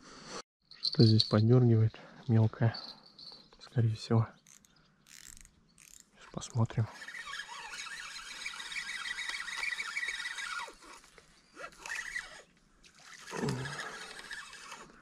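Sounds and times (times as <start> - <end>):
fishing reel ticking: 4.4 - 15.0.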